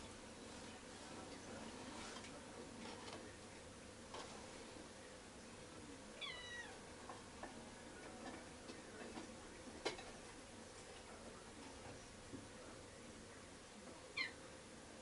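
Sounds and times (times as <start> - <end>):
cat meowing: 6.2 - 6.8.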